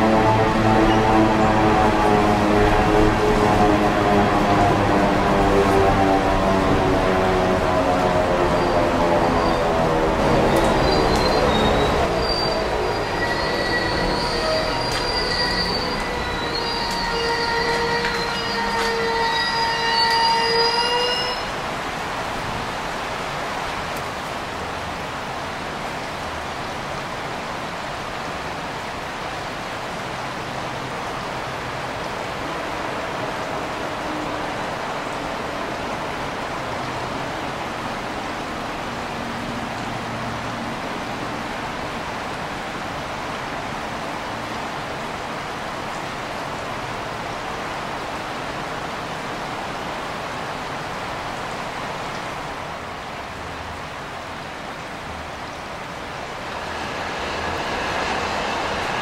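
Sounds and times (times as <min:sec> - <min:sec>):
creek water flowing: 0:00.0 - 0:59.0
thin high tones: 0:11.0 - 0:21.5, 0:56.1 - 0:59.0.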